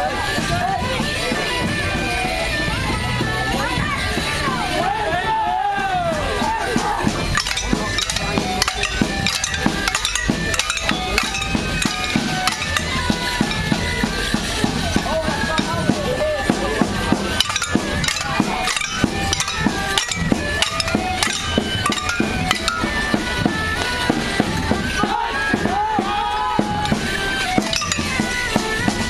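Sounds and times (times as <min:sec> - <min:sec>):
accordion and drum dance music: 0:06.3 - 0:25.9
sticks clacking together: 0:07.3 - 0:14.5, 0:17.0 - 0:24.0, 0:27.4 - 0:28.8.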